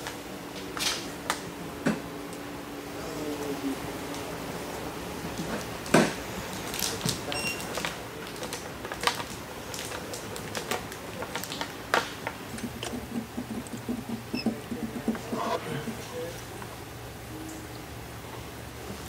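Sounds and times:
plastic film crinkling and tapping: 5.4s - 16.0s.

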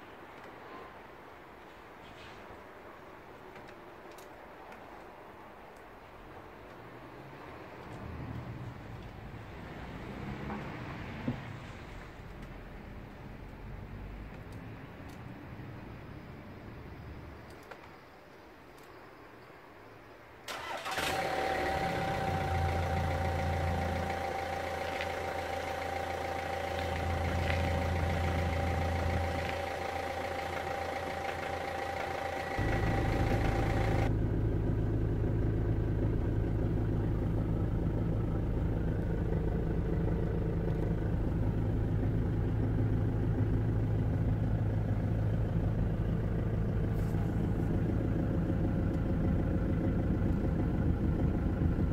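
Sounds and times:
van engine starting and idling: 20.5s - 51.9s.

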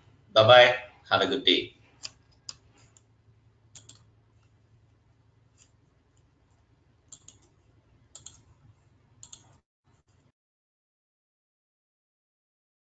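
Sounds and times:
low electrical hum: 0.0s - 10.3s
computer mouse clicks: 2.0s - 3.1s, 3.7s - 4.6s, 5.5s - 6.3s, 7.1s - 8.6s, 9.2s - 10.3s.

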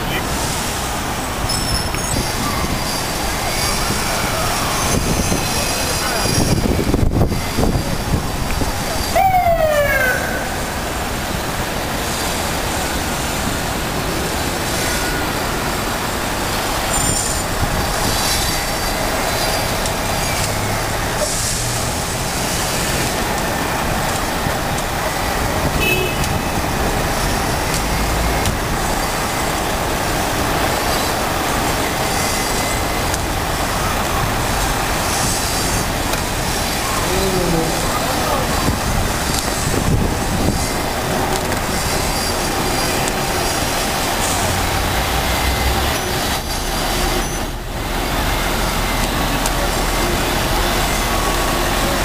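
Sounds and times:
passing traffic: 0.0s - 52.0s
siren winding down: 9.1s - 10.8s.

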